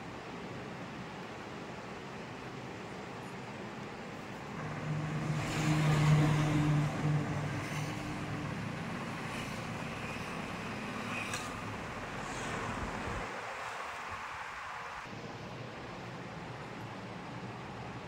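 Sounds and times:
traffic noise: 0.0 - 18.0
vehicle engine passing: 4.6 - 13.3.

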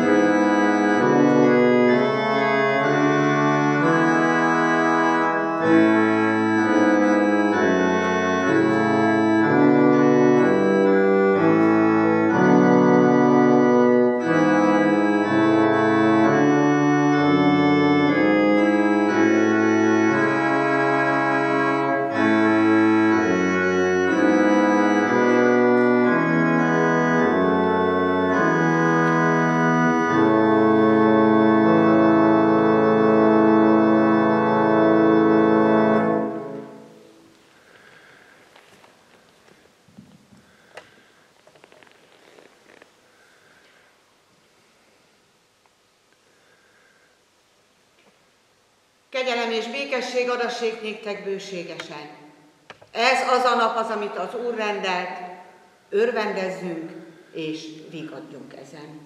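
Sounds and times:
church organ chords: 0.0 - 38.1.

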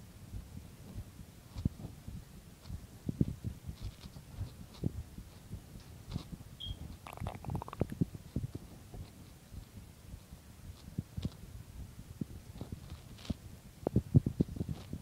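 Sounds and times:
rustling: 3.7 - 5.5, 12.5 - 13.4.

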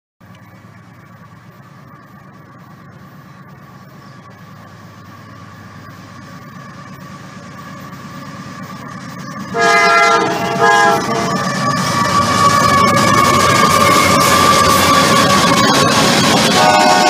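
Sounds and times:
diesel freight train rumbling: 0.2 - 17.0
train horn blasts: 9.5 - 13.1, 16.4 - 17.0.

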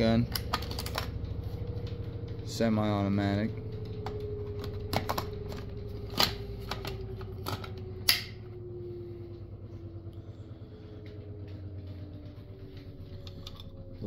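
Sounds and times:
laundry machine humming: 0.0 - 14.0.

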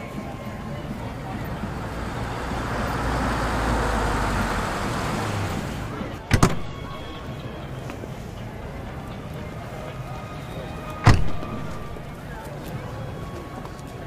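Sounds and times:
car tyre and road noise: 0.0 - 14.0
sharp double thump: 6.3 - 6.8.

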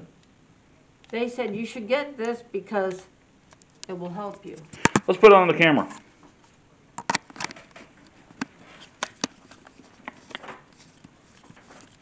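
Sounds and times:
camera handling clicks and knocks: 7.0 - 9.4.

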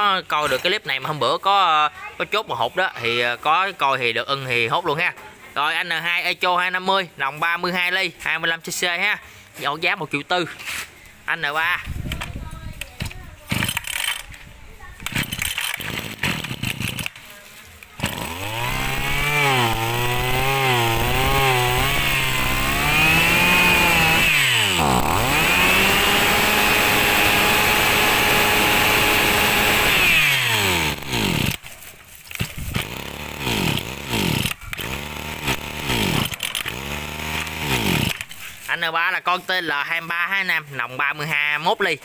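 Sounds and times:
brushcutter engine revving: 13.5 - 14.4, 15.0 - 17.3, 18.0 - 38.8.

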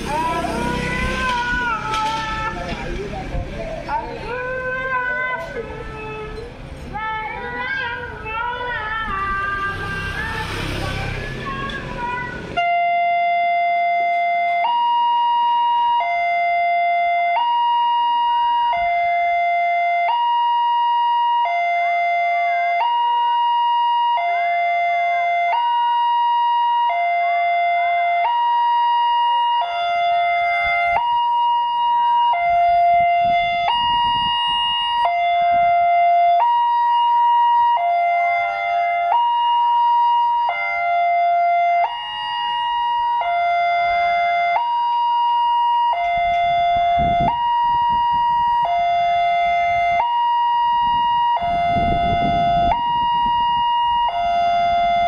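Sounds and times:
level crossing two-tone alarm: 12.6 - 55.0.

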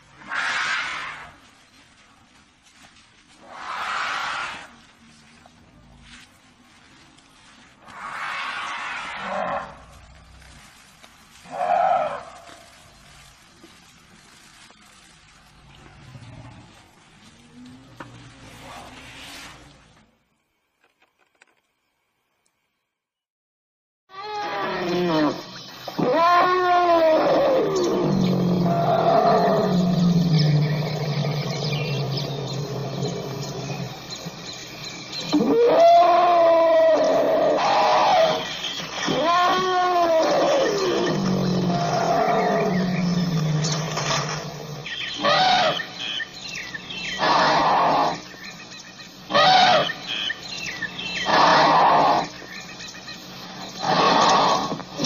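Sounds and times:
elephant calling: 24.1 - 55.0.

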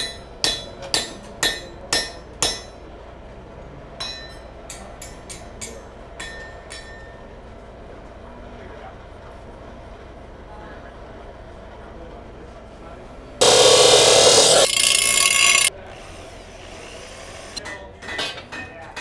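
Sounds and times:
hammer striking steel: 0.0 - 2.8, 13.4 - 15.7.

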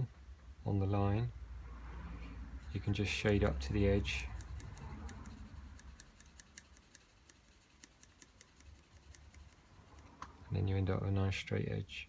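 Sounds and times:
pencil shading on paper: 2.7 - 10.2.

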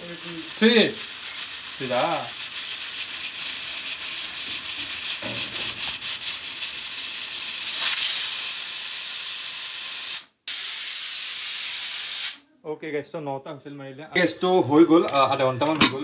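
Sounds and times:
pressure cooker whistling: 0.0 - 12.4.

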